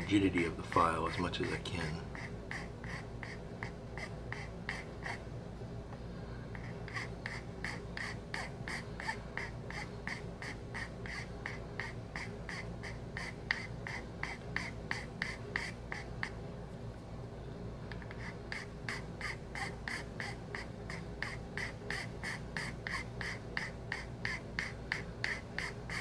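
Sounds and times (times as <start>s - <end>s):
metal file rasping on wood: 0.4s - 5.2s, 6.6s - 16.4s, 18.0s - 26.0s.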